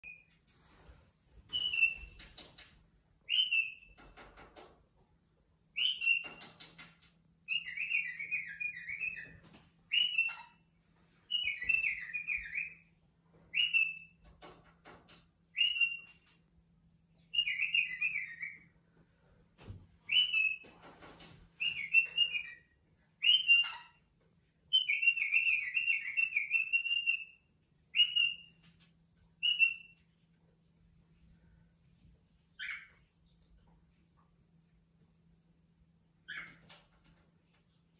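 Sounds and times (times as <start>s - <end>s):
cockatiel whistling: 1.5s - 2.2s, 3.3s - 3.9s, 5.8s - 6.5s, 7.5s - 9.3s, 9.9s - 10.6s, 11.3s - 12.9s, 13.5s - 14.1s, 15.5s - 16.2s, 17.3s - 18.6s, 20.1s - 20.6s, 21.6s - 22.6s, 23.2s - 24.0s, 24.7s - 28.7s, 29.4s - 30.0s.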